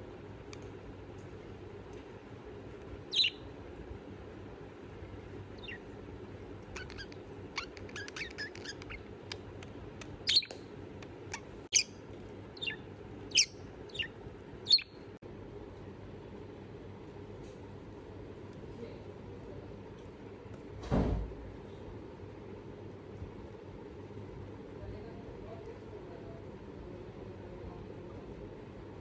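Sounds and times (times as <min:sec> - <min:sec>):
low room hum: 0:00.0 - 0:29.0
budgerigars chirping: 0:03.1 - 0:03.4, 0:05.6 - 0:05.9, 0:06.7 - 0:09.4, 0:10.2 - 0:10.6, 0:12.6 - 0:14.9.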